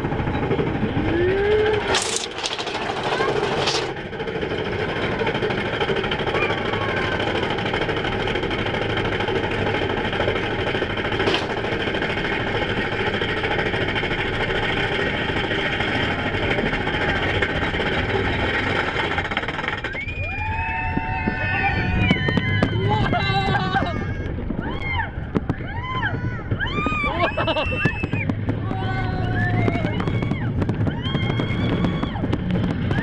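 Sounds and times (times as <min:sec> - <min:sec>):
lift chain clattering: 0:01.8 - 0:04.0.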